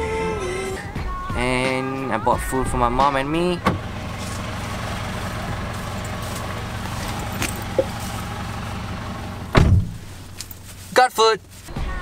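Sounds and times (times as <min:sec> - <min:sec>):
car idling: 0:00.0 - 0:11.7
car door slamming shut: 0:09.5 - 0:10.0.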